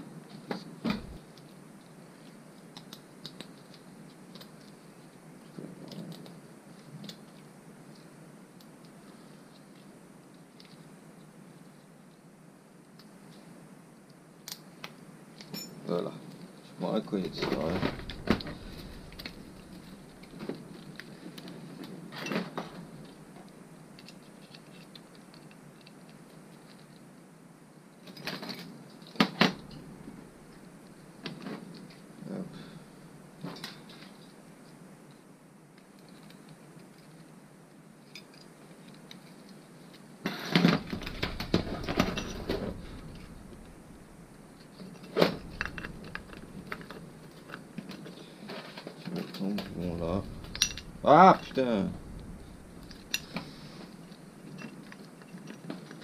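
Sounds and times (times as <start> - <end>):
metal parts clinking: 40.8 - 44.3, 45.0 - 47.0, 50.1 - 51.1.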